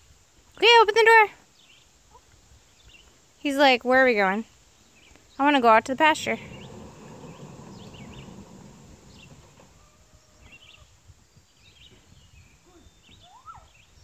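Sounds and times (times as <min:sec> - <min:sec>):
small birds chirping: 0:00.6 - 0:14.0
low rumble: 0:05.9 - 0:10.3.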